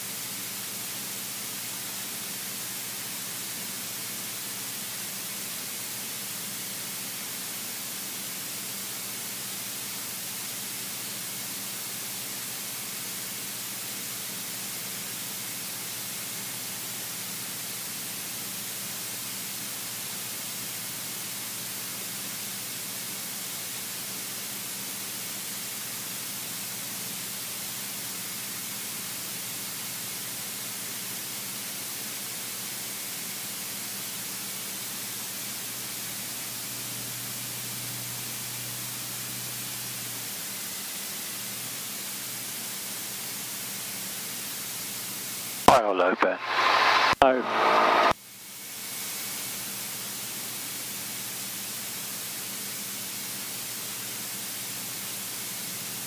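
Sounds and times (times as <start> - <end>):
intercom hiss: 45.7 - 48.2.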